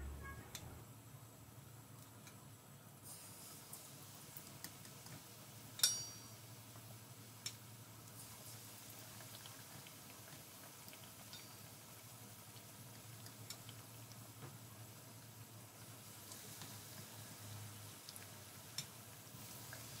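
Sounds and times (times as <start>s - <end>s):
food sizzling in hot oil: 3.0s - 20.0s
sharp ringing click: 5.8s - 6.3s.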